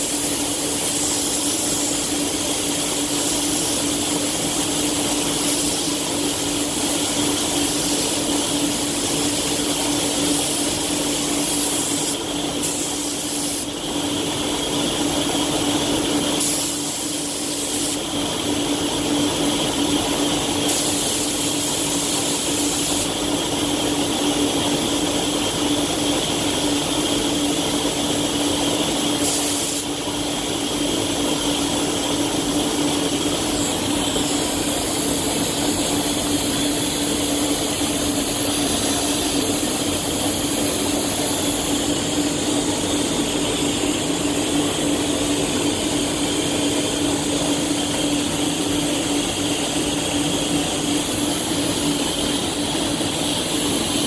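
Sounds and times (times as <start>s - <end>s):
spray gun hissing: 0.0s - 13.8s, 16.4s - 18.1s, 20.6s - 23.2s, 29.2s - 30.0s, 33.3s - 54.0s
ventilation hum: 0.0s - 54.0s.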